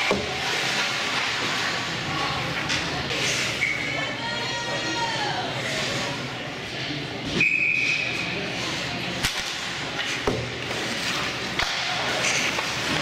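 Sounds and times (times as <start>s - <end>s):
sticks and puck cracking: 9.2s - 13.0s.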